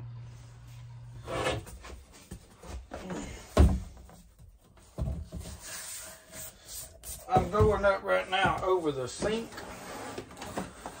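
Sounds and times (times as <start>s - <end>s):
knocks and thumps of wall board: 3.2s - 5.6s, 7.3s - 9.4s.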